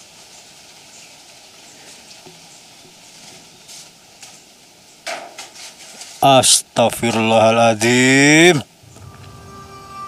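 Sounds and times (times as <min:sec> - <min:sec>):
faint hiss of splashing water: 0:00.0 - 0:10.0
soft rustles: 0:00.2 - 0:04.6, 0:05.3 - 0:06.2.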